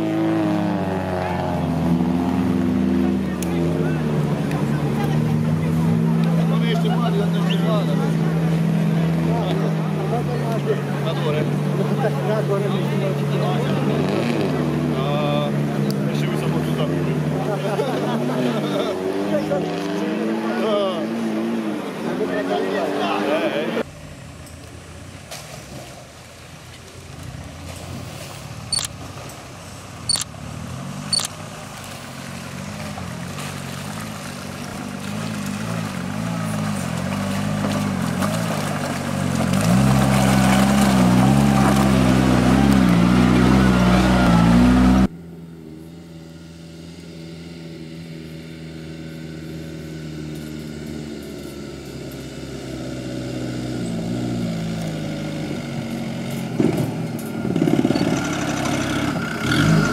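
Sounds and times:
off-road engine revving under load: 0.0s - 24.5s, 27.4s - 59.9s
sharp clicks: 31.1s - 31.4s.

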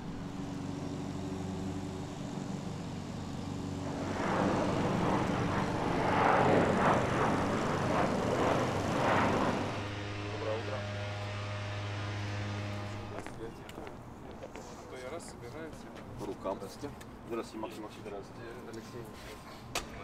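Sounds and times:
airliner passing overhead: 0.0s - 20.0s.

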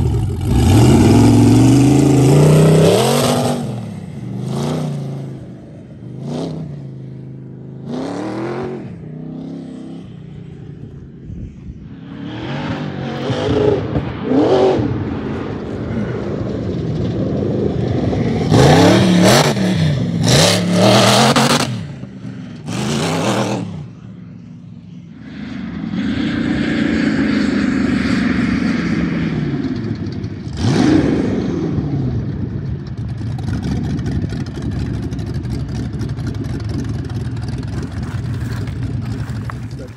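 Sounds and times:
engine revving hard: 0.0s - 5.3s, 7.8s - 10.0s, 12.2s - 15.0s, 18.4s - 21.9s, 22.6s - 23.9s, 30.5s - 32.0s.

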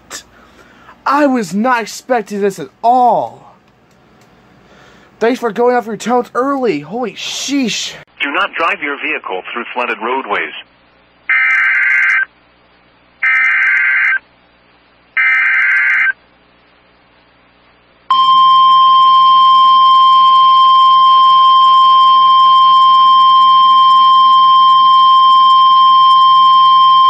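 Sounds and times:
screeching digital data bursts: 11.3s - 12.3s, 15.2s - 16.2s
steady warning alarm tone: 18.1s - 27.0s.

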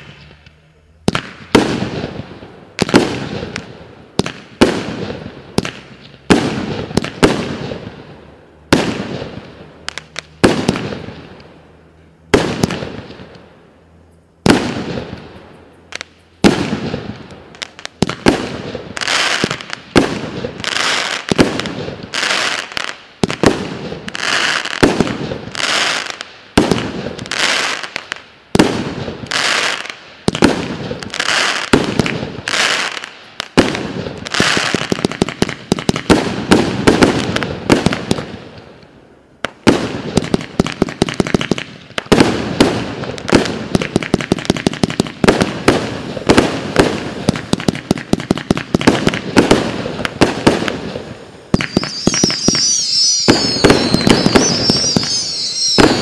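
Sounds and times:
fireworks shells bursting with bangs: 0.0s - 11.6s, 39.5s - 56.0s.

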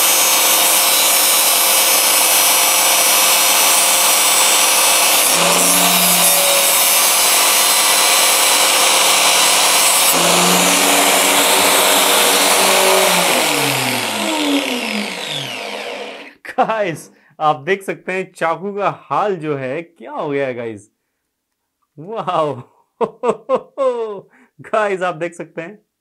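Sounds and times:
angle grinder running free: 0.0s - 16.3s
angle grinder grinding metal: 0.0s - 16.4s.

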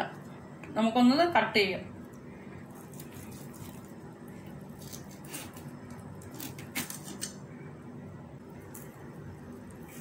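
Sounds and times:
knife cutting crisp pastry: 2.7s - 7.4s.

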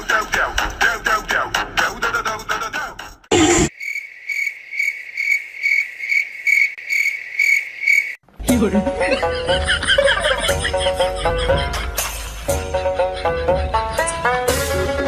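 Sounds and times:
cricket chirps: 3.7s - 8.2s.

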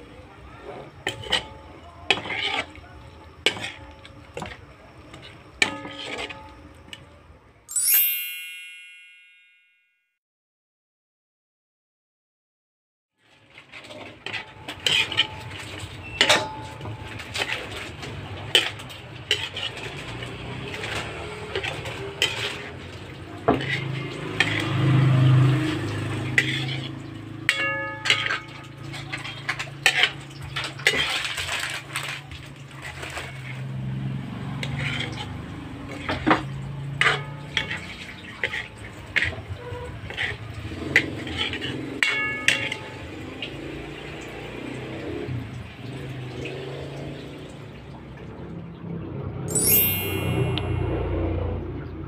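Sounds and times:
metal utensils scraping a pan: 0.8s - 6.7s, 13.3s - 44.1s.

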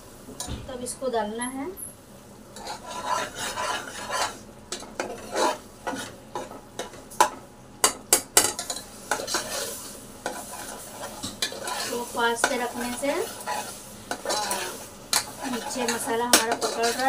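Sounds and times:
light sizzle: 0.0s - 17.0s
ladle scraping pot: 2.6s - 4.4s, 5.0s - 6.5s, 8.6s - 17.0s.

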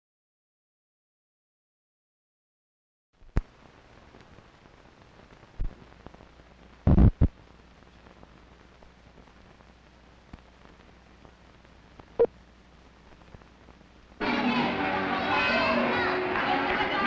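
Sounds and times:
pops and crackles: 3.2s - 14.2s
film soundtrack hiss: 3.2s - 17.0s.

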